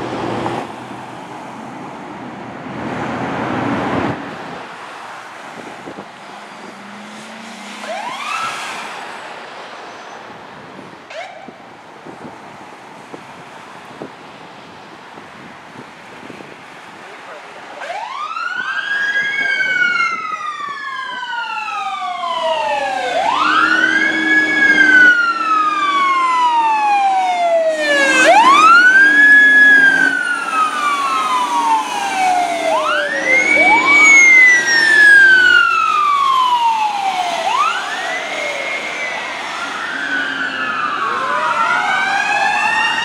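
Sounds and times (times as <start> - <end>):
fire truck siren wailing: 2.8 - 9.4, 11.1 - 11.6, 17.3 - 43.0
ambulance siren: 5.5 - 9.1, 11.1 - 11.6, 17.8 - 43.0.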